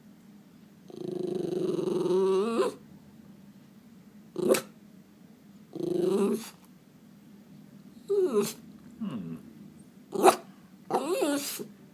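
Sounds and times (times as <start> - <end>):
dog whining: 0.9 - 2.8, 4.4 - 4.7, 5.7 - 6.6, 8.0 - 9.5, 10.1 - 11.7.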